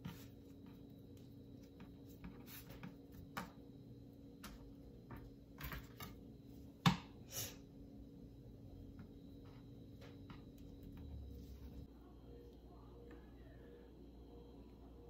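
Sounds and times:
hands working dough on board: 0.0 - 3.7.

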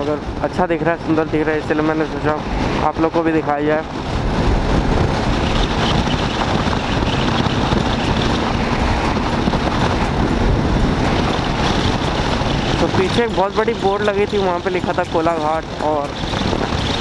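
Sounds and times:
wind rushing on microphone: 0.0 - 17.0
motorcycle engine: 3.9 - 17.0.

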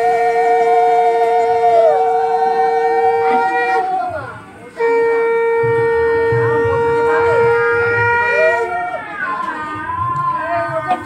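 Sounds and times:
conch shell low note: 0.0 - 4.0, 4.7 - 8.8
higher wavering conch note: 0.0 - 9.1.

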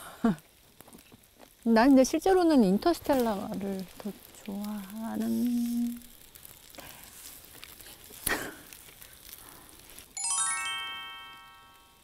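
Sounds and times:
rising chime tones: 10.2 - 12.0.

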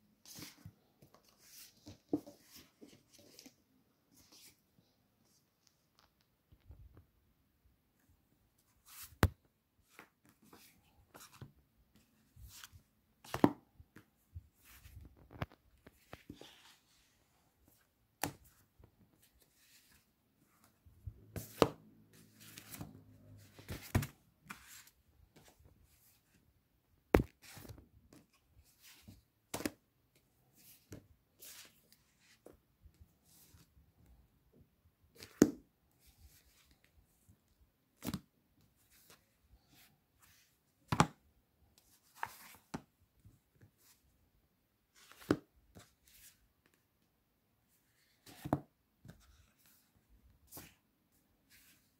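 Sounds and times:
book pages slapping: 12.4 - 17.0, 21.3 - 26.4, 27.1 - 29.8, 41.9 - 42.9, 45.0 - 46.4, 48.0 - 50.8.

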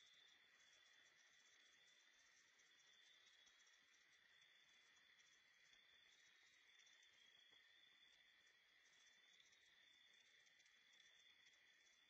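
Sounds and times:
night insects trilling: 0.0 - 12.0.

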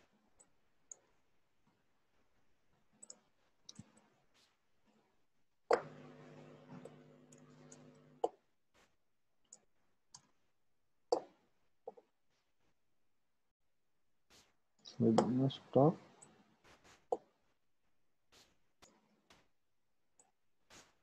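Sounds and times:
low steady hum: 5.8 - 8.2.

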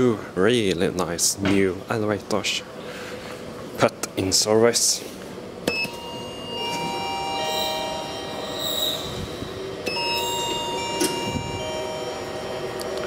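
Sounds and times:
train wheels squealing: 6.6 - 11.5.

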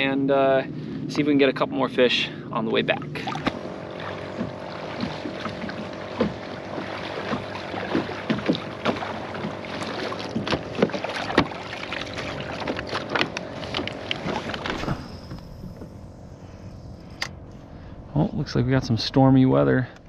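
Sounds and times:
water sloshing around kayak hull: 2.8 - 16.6
paddle knocking against boat: 3.2 - 15.0.

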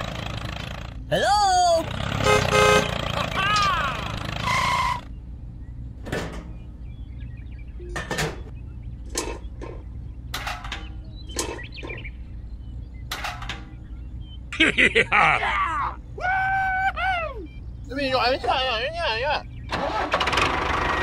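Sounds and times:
steady low hum: 4.7 - 19.7.

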